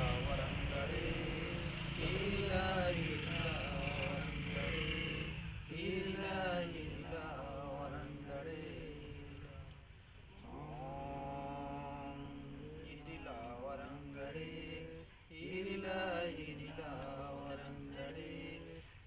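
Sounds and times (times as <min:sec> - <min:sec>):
low rumble: 0:00.0 - 0:04.8
voices chanting a prayer: 0:00.0 - 0:19.0.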